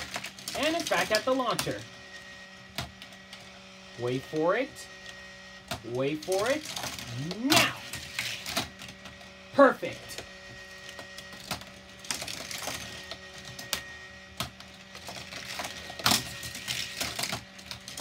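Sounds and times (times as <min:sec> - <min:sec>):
toy cars clacking on plastic track: 0:00.0 - 0:01.8, 0:06.2 - 0:08.9, 0:11.0 - 0:18.0
toy motor humming: 0:00.0 - 0:18.0.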